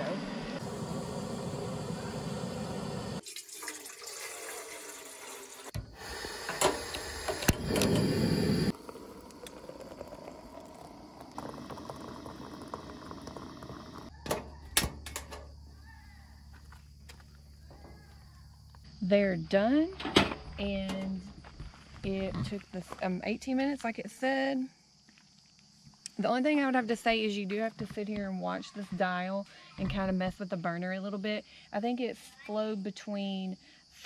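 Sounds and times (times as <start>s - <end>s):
hot water pouring from kettle: 0.6s - 14.1s.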